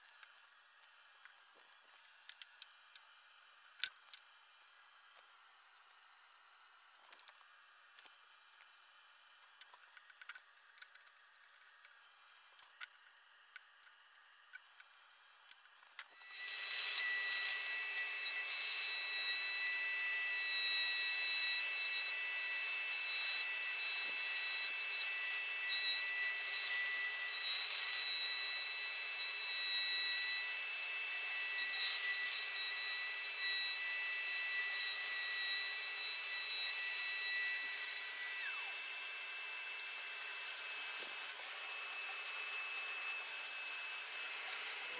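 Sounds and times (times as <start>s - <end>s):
router high whine cutting wood: 16.0s - 44.9s.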